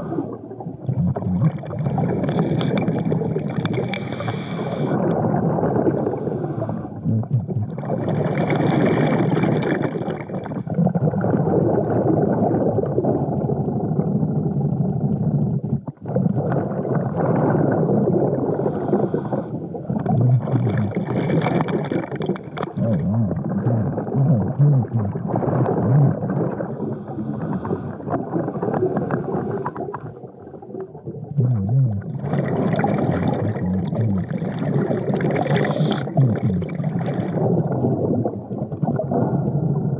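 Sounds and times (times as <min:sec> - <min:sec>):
gurgle of exhaled bubbles: 0:00.0 - 0:39.9
diver regulator air hiss: 0:03.9 - 0:05.0, 0:35.5 - 0:36.1.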